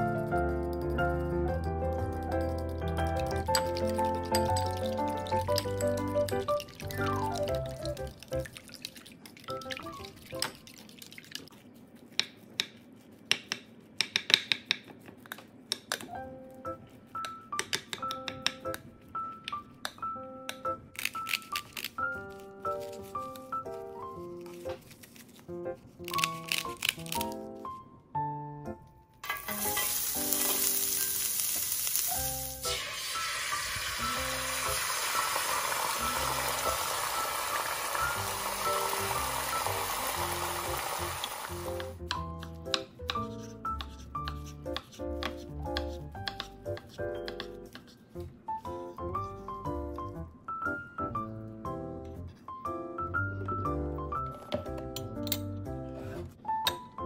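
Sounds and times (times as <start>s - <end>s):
light background music: 0.0s - 8.6s, 16.0s - 57.0s
oil and egg sizzling in a pan: 2.9s - 11.5s, 29.2s - 42.0s.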